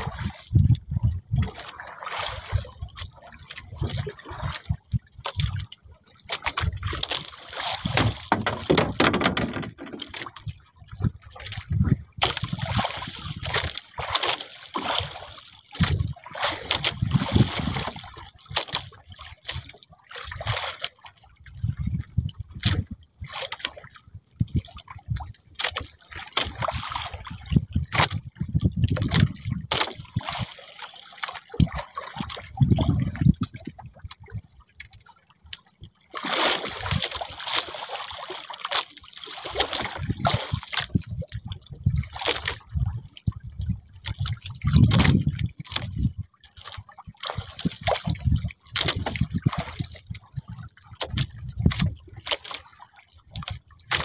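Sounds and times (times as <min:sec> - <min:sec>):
water splashing and sloshing: 0:00.0 - 0:54.0
knocks: 0:08.0 - 0:10.2.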